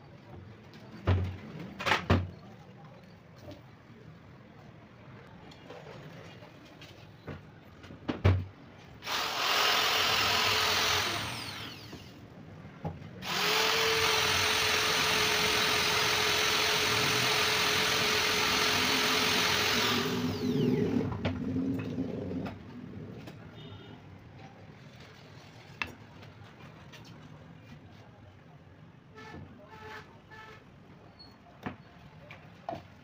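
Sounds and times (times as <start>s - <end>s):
electric drill boring through glass: 9.0s - 12.2s, 13.2s - 21.1s.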